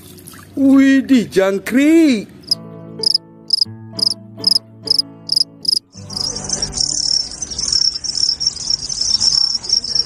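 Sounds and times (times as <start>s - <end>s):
crickets chirping: 2.4s - 10.0s.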